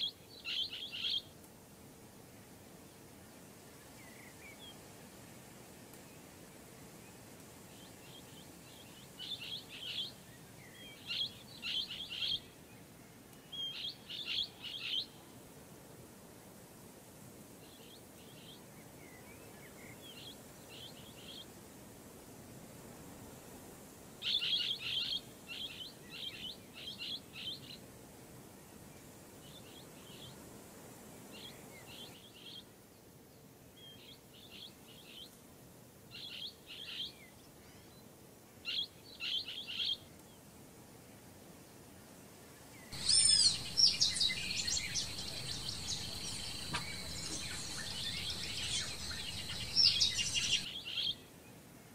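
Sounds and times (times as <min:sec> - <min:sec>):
faint background noise: 0:00.0 - 0:51.9
parrots calling: 0:43.0 - 0:50.6.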